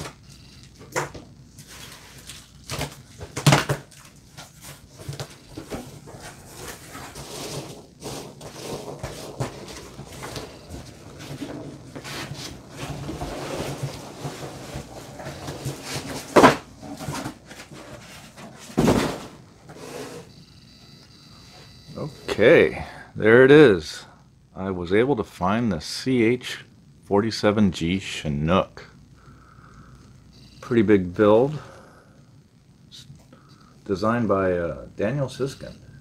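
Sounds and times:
foam packing peanuts rustling: 1.6s - 19.4s
cardboard scraping: 1.6s - 20.3s.

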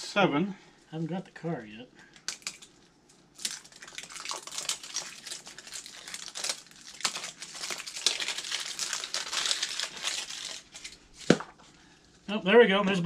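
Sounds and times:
wrapper crackling and rustling: 2.2s - 11.6s.

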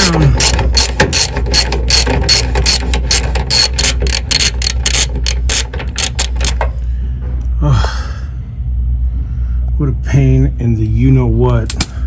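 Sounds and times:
hand ratchet clicking: 0.0s - 6.6s.

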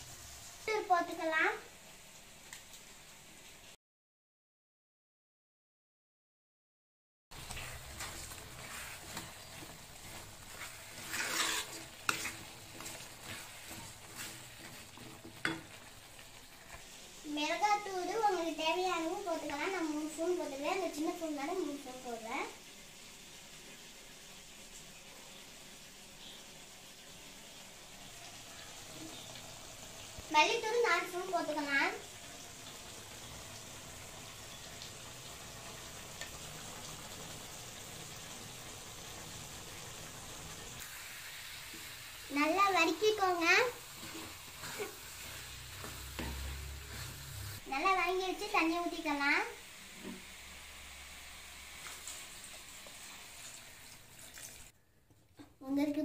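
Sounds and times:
faint sizzle: 0.0s - 3.8s, 7.3s - 56.0s
spatula scraping pan: 7.4s - 16.9s, 41.6s - 47.6s, 49.9s - 50.3s.

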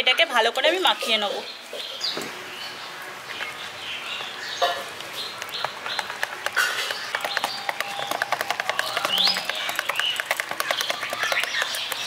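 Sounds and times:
birds chirping: 0.1s - 12.0s
whisk beating batter in bowl: 5.6s - 12.0s.

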